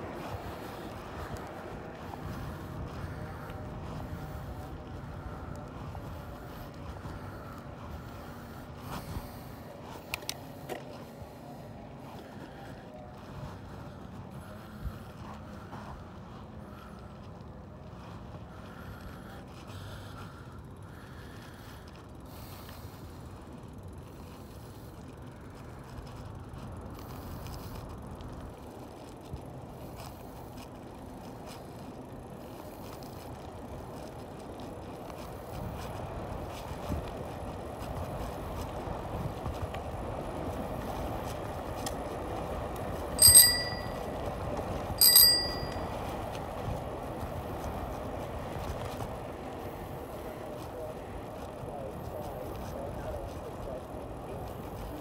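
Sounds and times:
wind and tyre noise: 0.0s - 55.0s
bicycle bell ringing: 43.0s - 46.4s.

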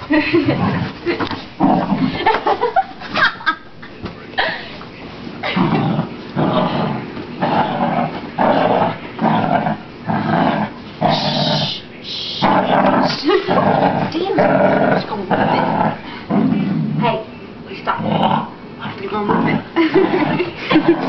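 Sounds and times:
dog growling: 0.4s - 2.3s, 5.4s - 11.8s, 12.4s - 21.0s.

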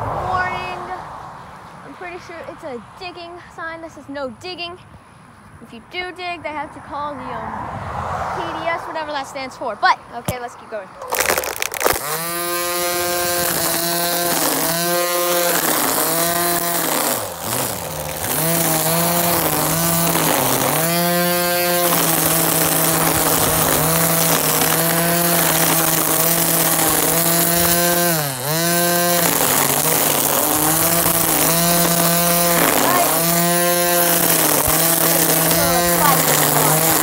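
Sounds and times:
string trimmer motor running: 11.0s - 37.0s.

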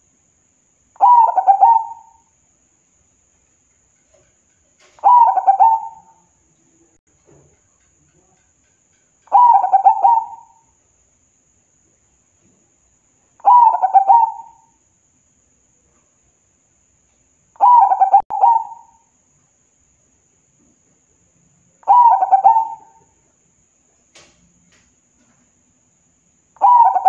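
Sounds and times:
dove cooing: 1.0s - 2.2s, 4.8s - 6.2s, 9.3s - 10.6s, 13.4s - 14.7s, 17.6s - 19.0s, 21.8s - 23.1s, 26.6s - 27.0s.

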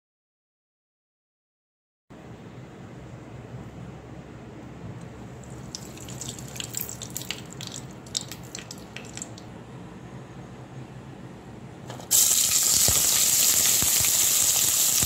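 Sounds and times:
low steady hum: 2.1s - 15.0s
oil crackling and popping: 5.5s - 9.5s, 12.1s - 15.0s.

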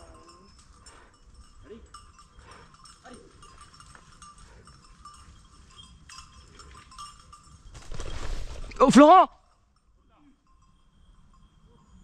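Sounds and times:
small bell tinkling: 0.0s - 12.0s
low rustle: 7.7s - 9.1s.

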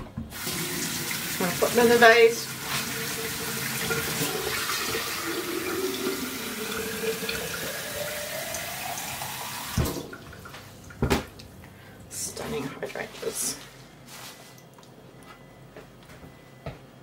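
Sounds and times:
tap water filling a vase: 2.6s - 11.0s.

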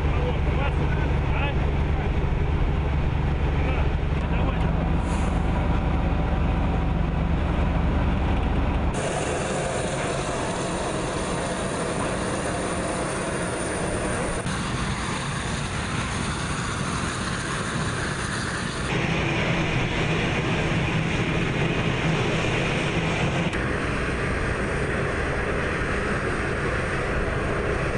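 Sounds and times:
deep low rumble: 0.0s - 22.0s
heavy vehicle engine noise: 0.0s - 27.9s.

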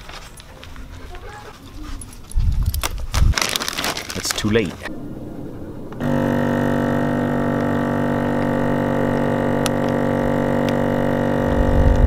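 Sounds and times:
vacuum pump humming: 6.0s - 12.0s.

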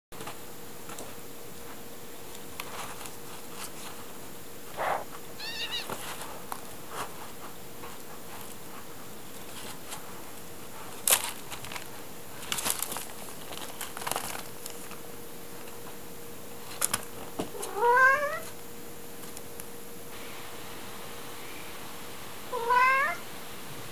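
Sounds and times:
kittens scratching in litter: 0.9s - 15.0s, 16.6s - 18.6s
cat call rising in pitch: 4.8s - 5.9s, 22.5s - 23.2s
kitten mewing: 4.8s - 5.9s, 17.6s - 18.5s, 22.5s - 23.2s.

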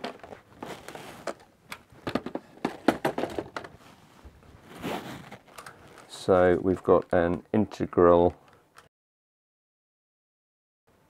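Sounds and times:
plastic packaging crinkling: 0.0s - 2.4s, 4.6s - 7.3s.

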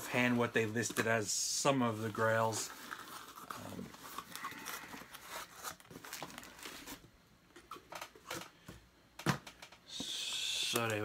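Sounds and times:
cardboard rustling and crinkling: 0.0s - 8.5s.

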